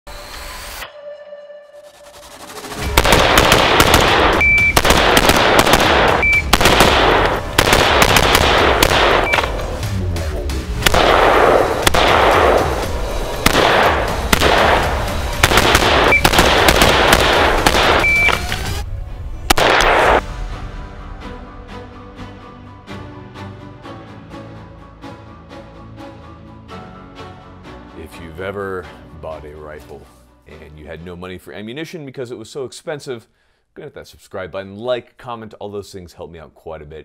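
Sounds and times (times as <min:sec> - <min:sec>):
music: 0:00.1 - 0:32.4
rifles firing rapid shots: 0:02.8 - 0:09.7, 0:10.8 - 0:18.6, 0:19.5 - 0:20.2
short high beeps: 0:04.4 - 0:04.8, 0:06.2 - 0:06.5, 0:18.0 - 0:18.5.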